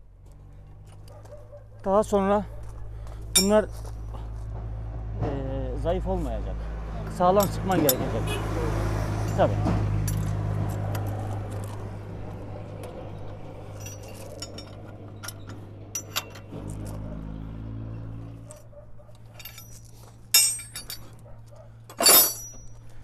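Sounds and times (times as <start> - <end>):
loud metal clank: 20.4 - 21.1, 21.9 - 22.8.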